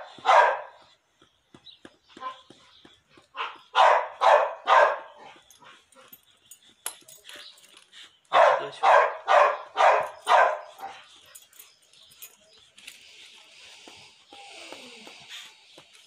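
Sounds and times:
dog barking: 0:00.0 - 0:00.8, 0:03.4 - 0:05.3, 0:08.3 - 0:11.0.

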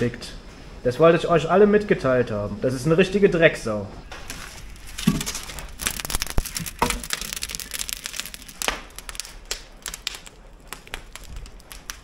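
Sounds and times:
wood fire crackling: 0:00.0 - 0:12.0
burning logs popping: 0:04.0 - 0:12.0.

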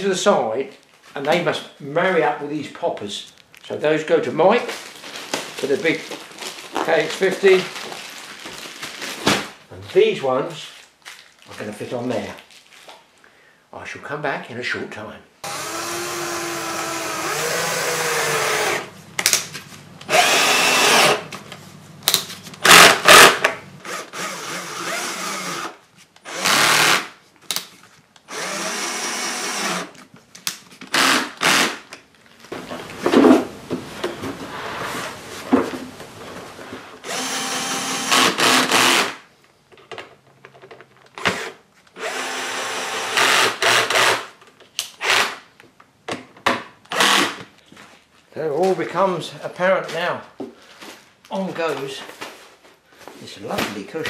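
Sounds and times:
cordless drill driving screws: 0:15.4 - 0:18.9, 0:20.1 - 0:21.3, 0:22.6 - 0:27.1, 0:28.3 - 0:30.0, 0:30.9 - 0:31.8, 0:37.0 - 0:39.2, 0:41.2 - 0:44.3, 0:45.0 - 0:45.4, 0:46.9 - 0:47.4.

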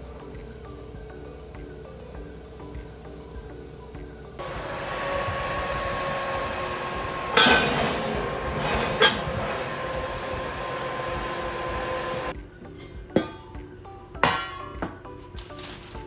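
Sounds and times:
oven fan humming: 0:02.2 - 0:12.3
skillet and lid scraping and clanking: 0:07.2 - 0:12.2.

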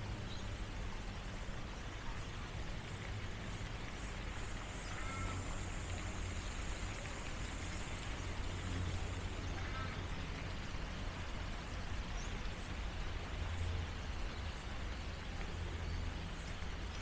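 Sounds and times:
outdoor hiss and low rumble: 0:00.0 - 0:17.0
faint short bird calls: 0:04.7 - 0:05.8.

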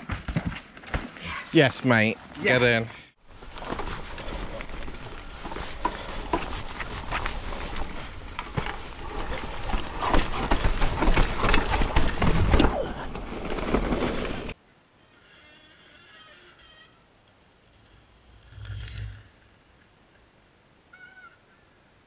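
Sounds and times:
tyres rolling over stones: 0:03.2 - 0:14.6
bike rattling and knocking: 0:03.3 - 0:14.6.

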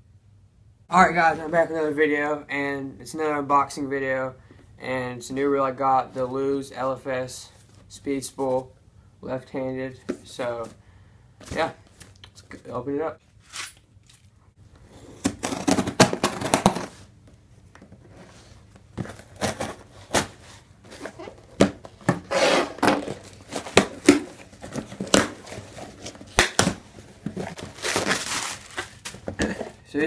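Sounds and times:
knife slitting packing tape: 0:13.4 - 0:14.2
tape tearing: 0:13.4 - 0:14.2, 0:15.2 - 0:16.9, 0:22.2 - 0:29.4.

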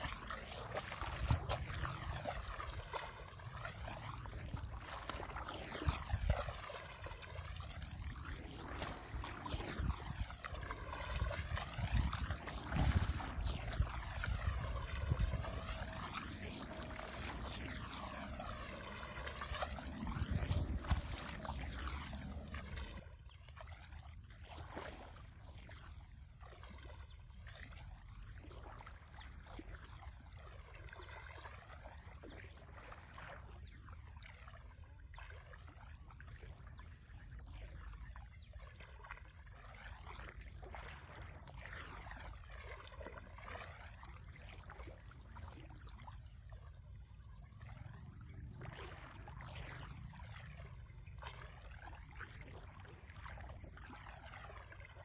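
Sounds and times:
water sloshing around legs: 0:00.0 - 0:55.0
low steady rumble: 0:00.9 - 0:23.2, 0:45.9 - 0:54.0.

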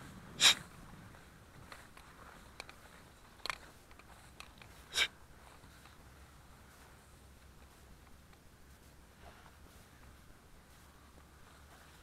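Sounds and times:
nasal sniffs: 0:00.4 - 0:00.7, 0:04.8 - 0:05.2.

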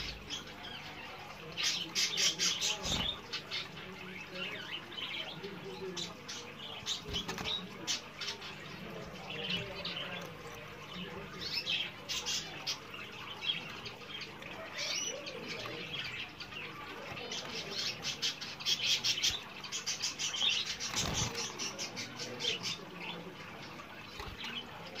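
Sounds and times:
canary chirping: 0:00.0 - 0:25.0
wings fluttering: 0:06.8 - 0:08.0, 0:20.5 - 0:22.6.

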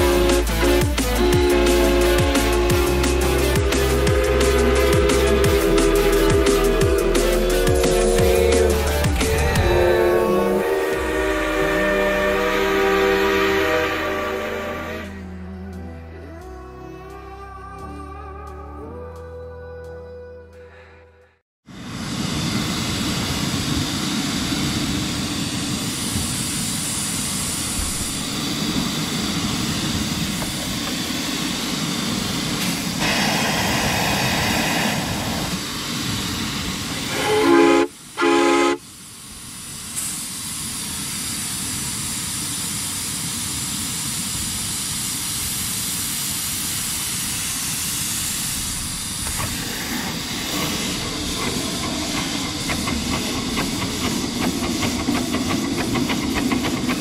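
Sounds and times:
steam locomotive hissing: 0:00.0 - 0:15.2, 0:21.7 - 0:57.0
steam whistle blasts: 0:00.0 - 0:15.4, 0:37.0 - 0:39.0.

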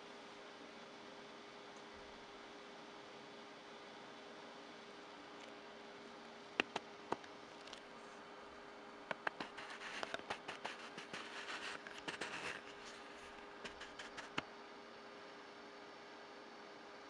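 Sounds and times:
faint steady hum: 0:00.0 - 0:17.0
light clicks and taps: 0:06.6 - 0:07.8, 0:09.1 - 0:14.5
rustling and scratching of coveralls: 0:06.6 - 0:08.3, 0:09.1 - 0:14.5.

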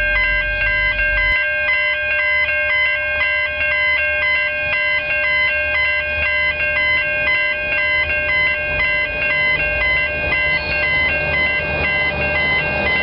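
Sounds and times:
low rumble: 0:00.0 - 0:01.4
electronic melody: 0:00.0 - 0:13.0.

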